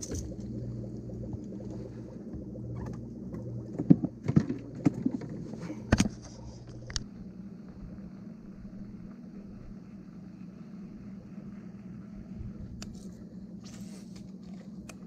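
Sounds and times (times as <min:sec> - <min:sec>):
steady low hum: 0:00.0 - 0:15.0
knocks and thumps in boat: 0:03.7 - 0:06.4.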